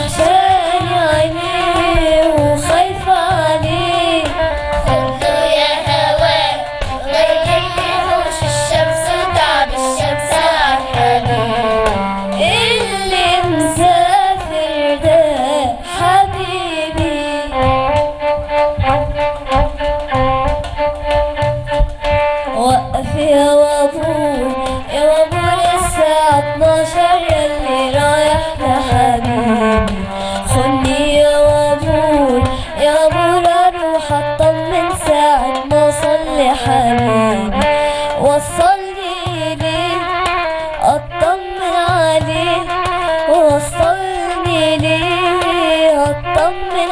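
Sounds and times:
rhythmic accompaniment: 0:00.0 - 0:46.9
violin melody sliding: 0:00.0 - 0:46.9.

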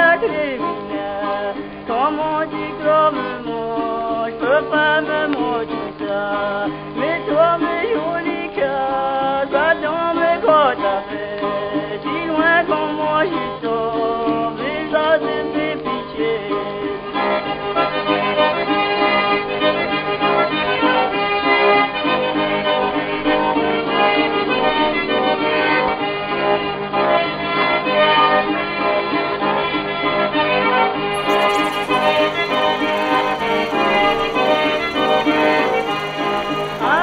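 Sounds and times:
accordion-led traditional music: 0:31.1 - 0:37.0.

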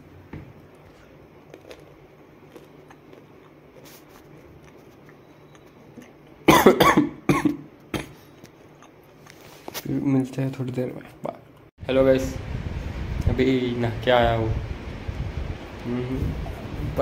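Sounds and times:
man coughing: 0:06.5 - 0:08.2.

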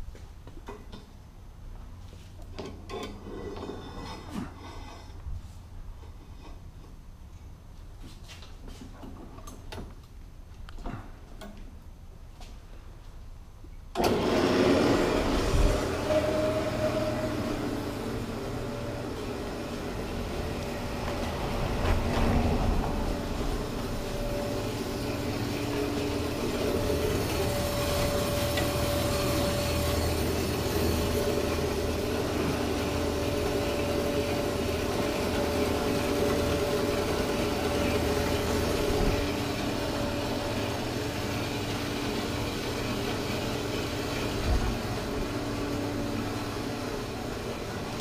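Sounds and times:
band saw cutting metal: 0:14.3 - 0:44.4.

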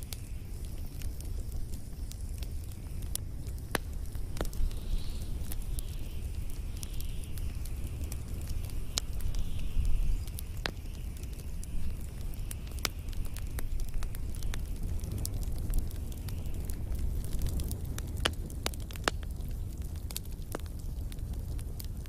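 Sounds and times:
faint wavering hiss: 0:00.0 - 0:17.2
fire crackling and popping: 0:00.0 - 0:22.0
low rumble of flames: 0:00.0 - 0:22.0.

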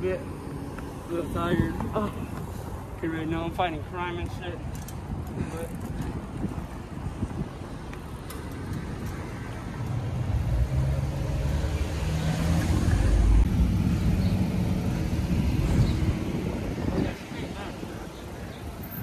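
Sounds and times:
road traffic: 0:00.0 - 0:19.0.

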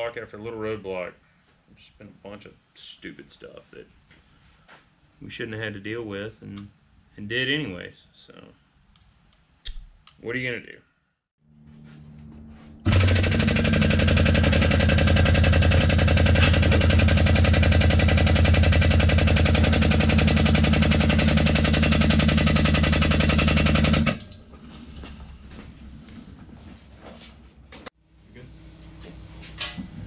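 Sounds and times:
loud machine pulsing: 0:11.6 - 0:24.4.

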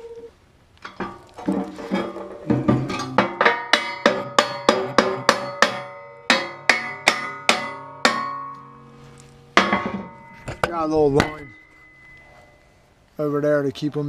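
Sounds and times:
hammer striking ringing steel: 0:02.7 - 0:12.8.

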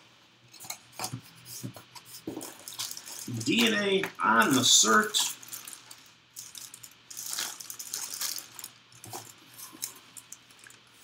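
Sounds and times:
plastic bag crinkling: 0:02.2 - 0:11.0.

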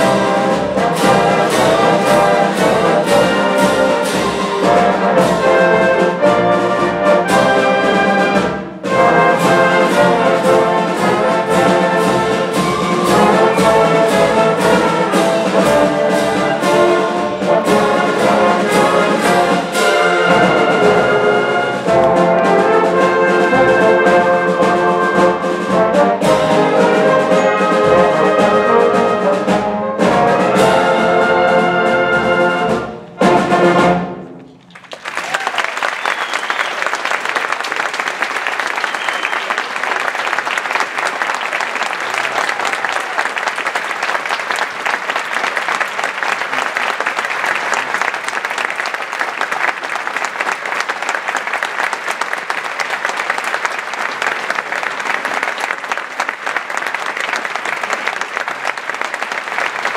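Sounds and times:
concert band playing: 0:00.0 - 0:59.9
audience applauding: 0:09.5 - 0:15.7, 0:34.7 - 0:59.9.

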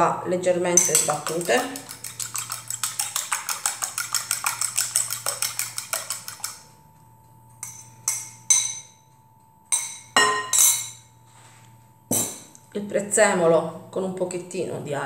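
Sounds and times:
fork beating eggs in glass bowl: 0:00.7 - 0:06.8
fork tapping glass bowl: 0:00.8 - 0:06.7, 0:07.6 - 0:08.9, 0:09.7 - 0:11.0.

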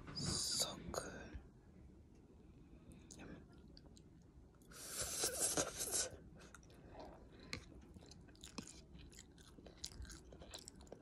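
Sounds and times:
person slurping noodles: 0:04.7 - 0:06.1
chewing with wet mouth clicks: 0:06.4 - 0:11.0.

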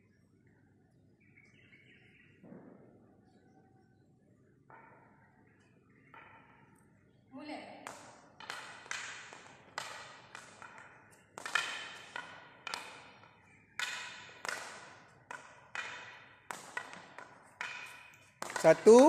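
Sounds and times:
hockey stick tapping ball: 0:07.8 - 0:19.0.

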